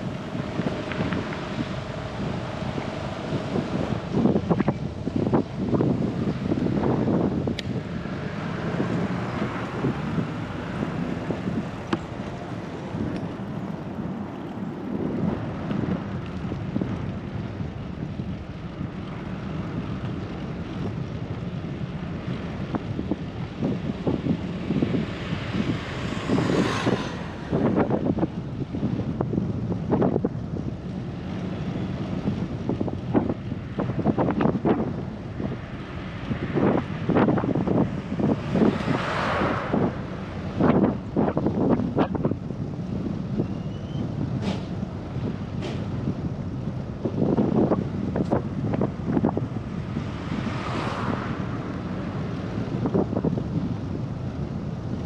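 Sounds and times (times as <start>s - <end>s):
motor vehicle passing: 0.0s - 16.6s, 23.6s - 29.0s, 31.2s - 42.6s, 47.5s - 53.9s
bicycle rolling road noise: 0.0s - 55.0s
wind noise on microphone: 0.0s - 55.0s.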